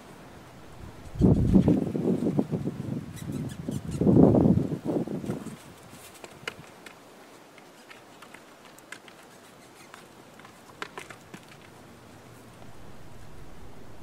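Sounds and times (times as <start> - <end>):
low steady rumble: 0.2 - 1.6, 11.8 - 14.0
hooves knocking on wooden ties: 5.2 - 11.9
horse hooves trotting: 5.2 - 13.4.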